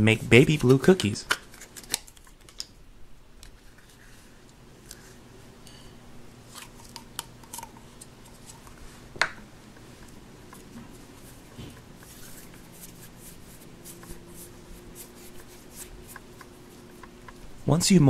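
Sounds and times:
modeling clay rustling and kneading: 7.9s - 18.0s.

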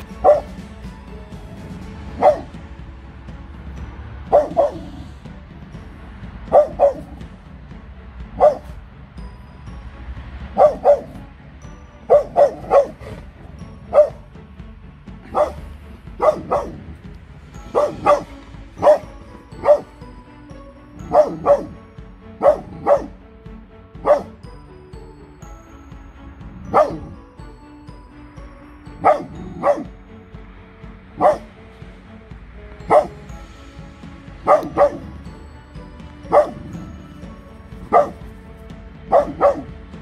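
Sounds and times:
dog barking: 0.2s - 0.6s, 2.2s - 2.5s, 4.3s - 5.0s, 6.5s - 7.2s, 8.4s - 8.7s, 10.6s - 11.2s, 12.1s - 13.2s, 13.9s - 14.2s, 15.3s - 15.6s, 16.2s - 16.8s, 17.7s - 19.9s, 21.1s - 21.8s, 22.4s - 23.2s, 24.0s - 24.4s, 26.7s - 27.2s, 29.0s - 29.9s, 31.2s - 31.5s, 32.9s - 33.1s, 34.5s - 35.1s, 36.3s - 36.7s, 37.9s - 38.2s, 39.1s - 39.7s.

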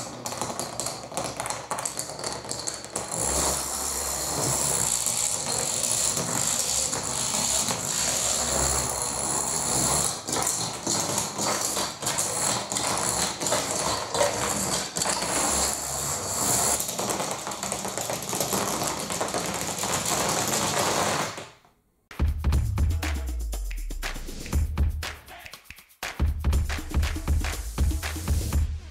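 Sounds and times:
toy dominoes toppling on wooden floor: 0.0s - 21.6s.

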